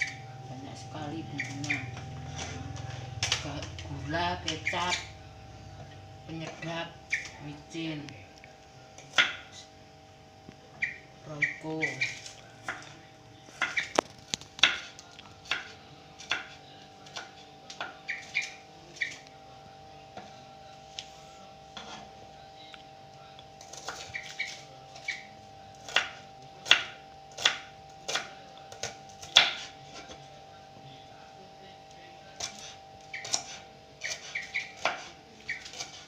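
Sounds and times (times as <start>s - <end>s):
knife chopping on wooden board: 32.4s - 36.0s.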